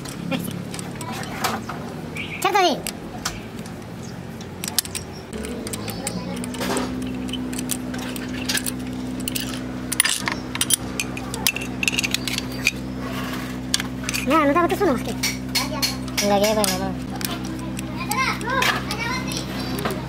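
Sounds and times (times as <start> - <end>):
steady low hum: 0.0 - 20.0
wrench clinking and scraping metal: 4.5 - 14.6.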